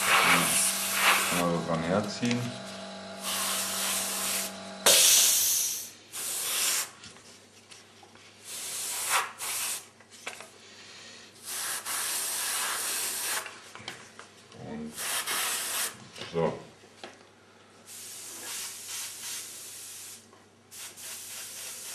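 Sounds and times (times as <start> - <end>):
airbrush spraying hiss: 0.0 - 1.6, 3.2 - 6.9, 17.9 - 21.9
low steady hum: 0.0 - 5.9.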